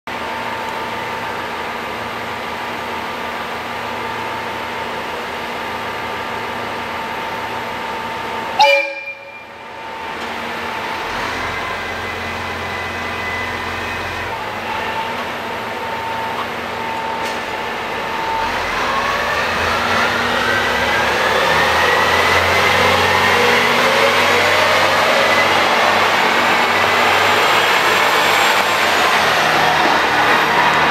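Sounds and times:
rising train whine: 0.1s - 30.9s
train horn blast: 8.6s - 9.6s.

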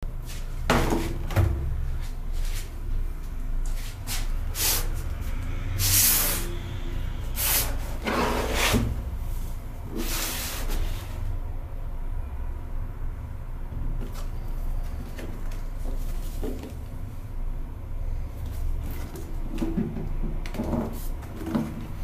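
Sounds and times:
cardboard box sliding on desk: 7.6s - 9.0s.

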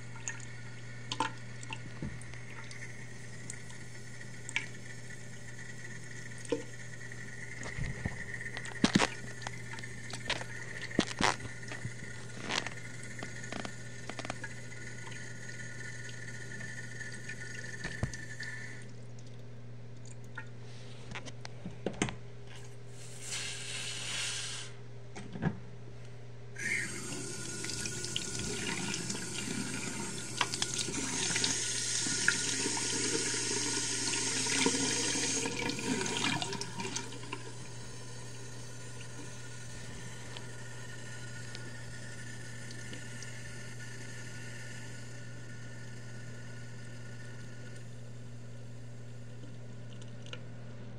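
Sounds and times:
water running into sink basin: 0.0s - 19.1s, 26.6s - 44.0s.

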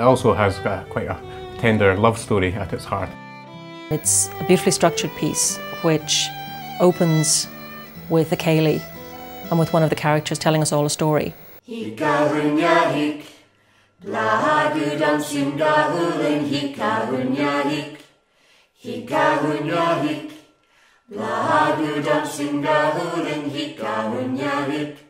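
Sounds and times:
person singing unaccompanied: 3.9s - 13.0s.

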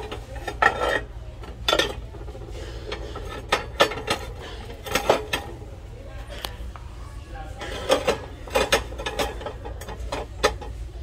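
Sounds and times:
ceramic bowls clinking: 0.0s - 5.6s.

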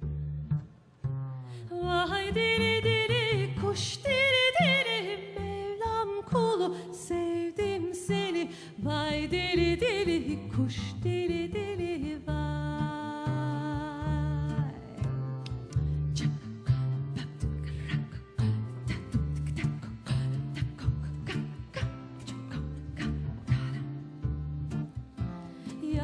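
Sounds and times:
plucked double bass: 0.0s - 26.0s
woman singing folk song: 1.3s - 26.0s.

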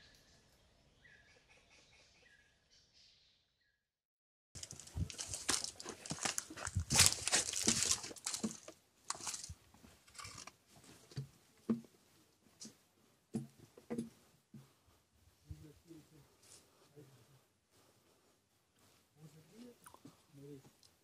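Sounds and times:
crinkling crunching rustle: 4.6s - 10.6s.

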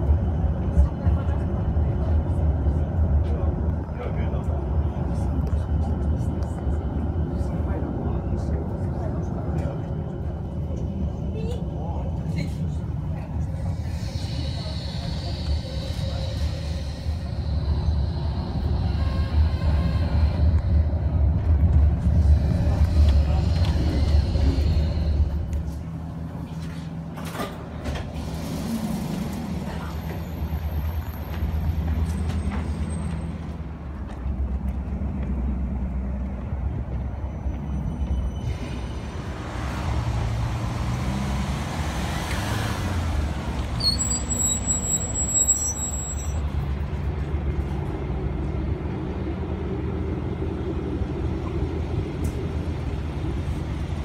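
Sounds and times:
low rumble of traffic: 0.0s - 54.0s
tram humming past: 0.0s - 54.0s
high squeal: 37.2s - 39.2s, 43.8s - 46.5s
vehicle passing with hiss: 38.9s - 43.8s.

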